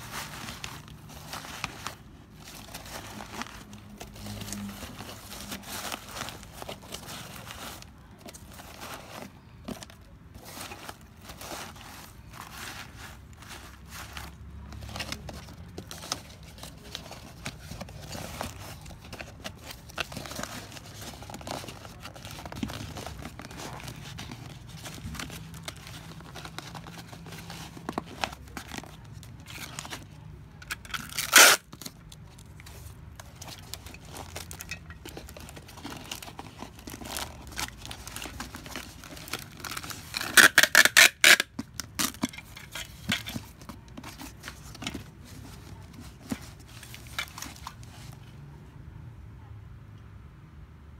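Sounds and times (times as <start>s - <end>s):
bubble wrap and paper rustling: 0.0s - 48.4s
cardboard tearing: 30.7s - 32.0s.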